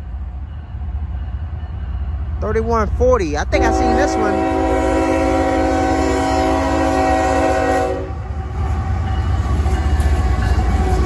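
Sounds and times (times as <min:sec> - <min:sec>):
train rumble and rail clatter: 0:00.0 - 0:11.0
locomotive air horn chord: 0:03.6 - 0:08.2.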